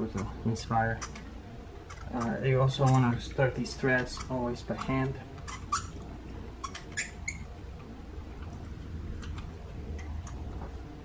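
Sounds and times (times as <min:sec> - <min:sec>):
spark plug squeaks and clicks: 0:05.4 - 0:06.0.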